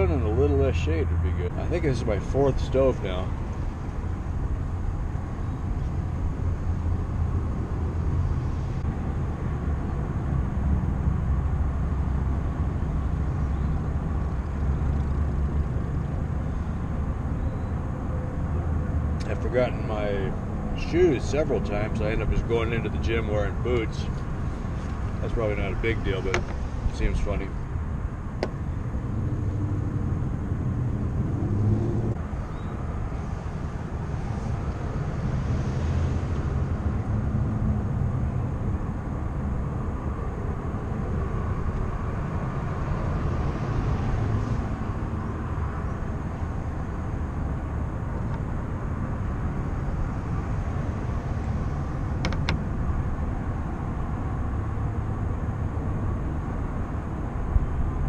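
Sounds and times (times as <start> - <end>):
low outdoor rumble: 0.0 - 58.0.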